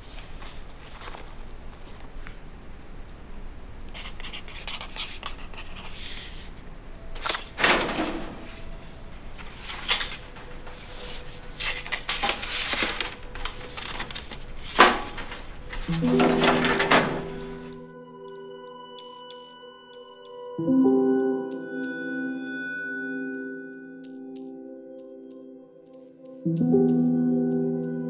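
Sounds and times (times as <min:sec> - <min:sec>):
paper rustling and scraping: 0:00.0 - 0:02.2, 0:04.0 - 0:06.6, 0:07.2 - 0:17.8.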